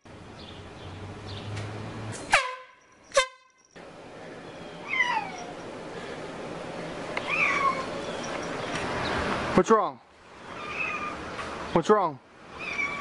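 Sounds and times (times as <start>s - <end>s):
horn-like honks: 2.3s - 3.6s
cat meowing: 4.8s - 5.6s, 7.2s - 7.9s, 10.5s - 11.2s, 12.5s - 13.0s.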